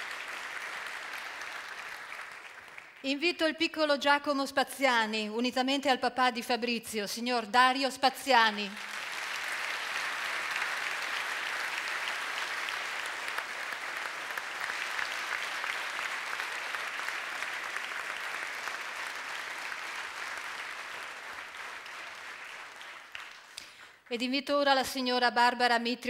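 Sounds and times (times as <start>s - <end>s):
audience applauding: 0.0s - 3.1s, 8.6s - 24.1s.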